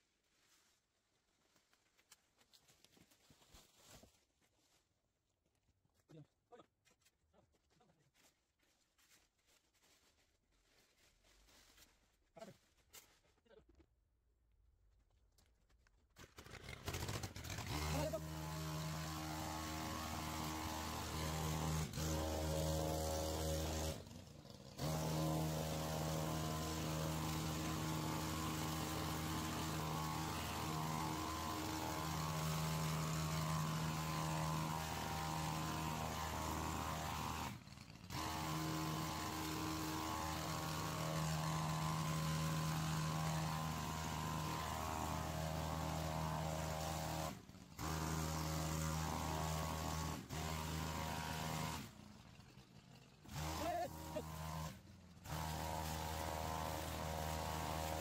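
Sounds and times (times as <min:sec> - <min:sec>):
two-stroke pole saw running: 0:16.3 - 0:58.0.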